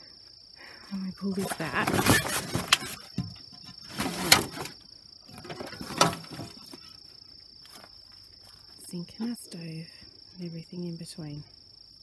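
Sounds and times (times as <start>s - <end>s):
high insect drone: 0.0s - 12.0s
canvas cover rustling: 1.3s - 3.1s, 3.8s - 6.9s.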